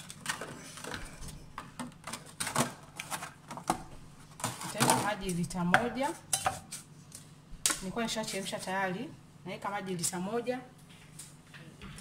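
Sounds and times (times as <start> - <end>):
woman's voice: 4.7 - 6.2, 7.8 - 10.8.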